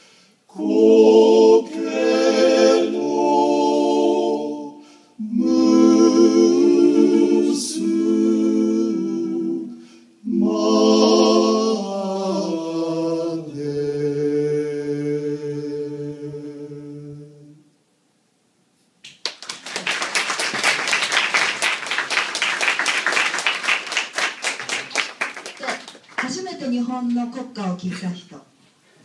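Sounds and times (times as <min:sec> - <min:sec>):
male vocal quartet singing: 0:00.5 - 0:17.6.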